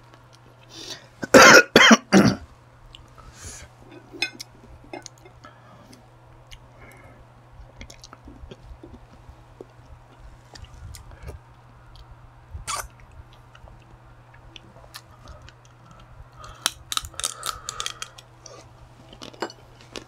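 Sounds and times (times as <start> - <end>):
man coughing: 1.2 - 2.4.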